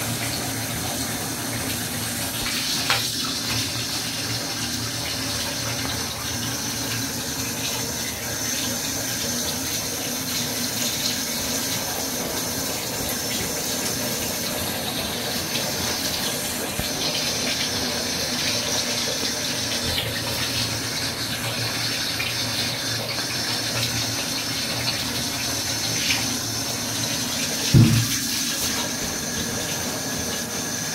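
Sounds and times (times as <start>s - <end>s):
tap water running into bathtub: 0.0s - 30.9s
dull knock: 27.7s - 28.2s.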